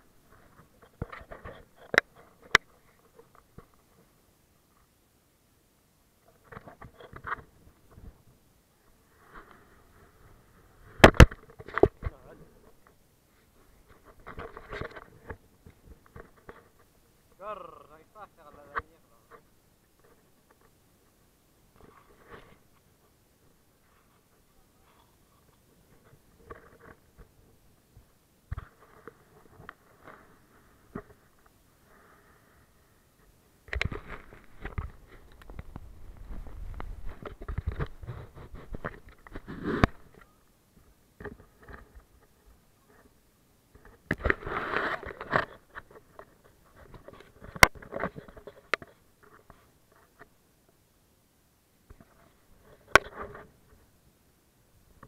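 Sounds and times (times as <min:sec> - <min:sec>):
fabric rustling against camera: 0:33.7 - 0:40.4.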